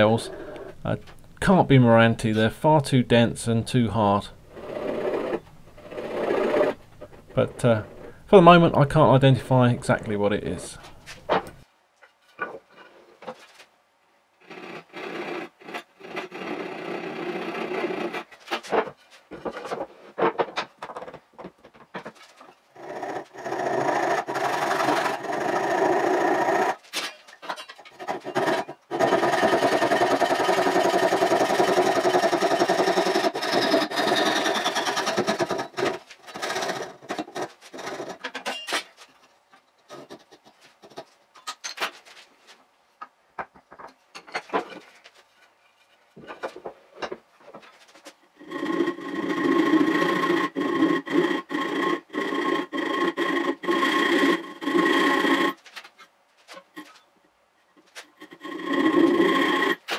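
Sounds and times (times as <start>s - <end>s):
saw rasping through wood: 4.5s - 6.8s, 14.4s - 18.4s, 22.8s - 26.8s, 27.9s - 38.2s, 48.4s - 55.6s, 58.0s - 59.9s.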